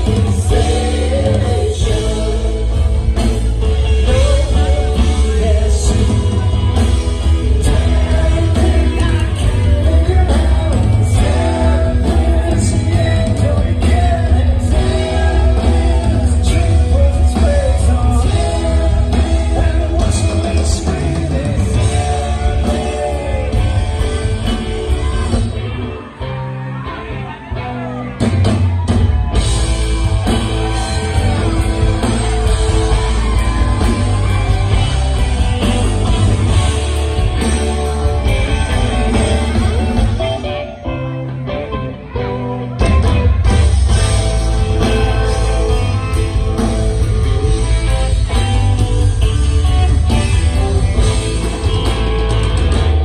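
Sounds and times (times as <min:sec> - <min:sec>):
person singing: 0:00.0 - 0:28.0
live rock band playing: 0:00.0 - 0:53.0.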